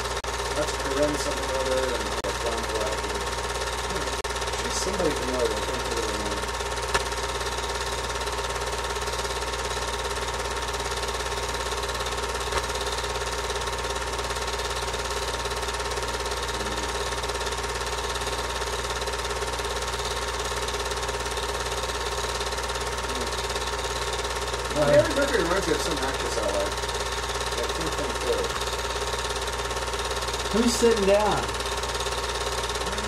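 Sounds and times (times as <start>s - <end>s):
film projector running: 0.0s - 33.0s.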